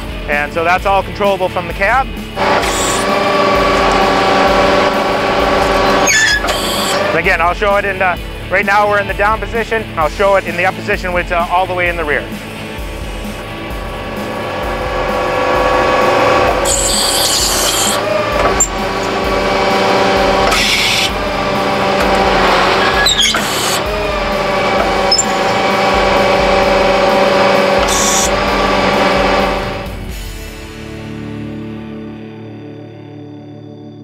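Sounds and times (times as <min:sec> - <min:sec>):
hydraulic auger humming and grinding: 0:02.2 - 0:09.4, 0:12.2 - 0:30.2
hydraulic hissing bursts: 0:02.4 - 0:07.3, 0:12.3 - 0:30.2.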